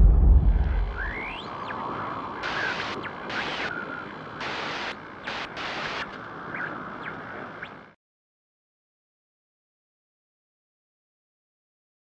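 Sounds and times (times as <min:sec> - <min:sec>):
faint chirping glides: 0:00.0 - 0:04.5, 0:06.4 - 0:08.0
static-like hiss: 0:00.8 - 0:08.0.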